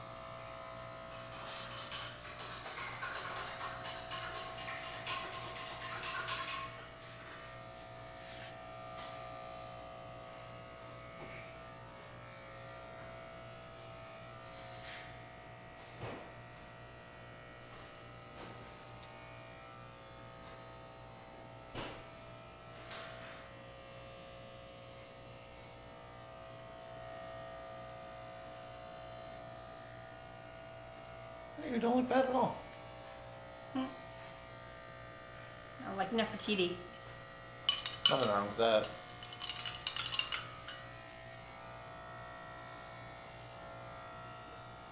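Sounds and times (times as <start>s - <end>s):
electric hair clippers buzzing: 0.0s - 44.9s.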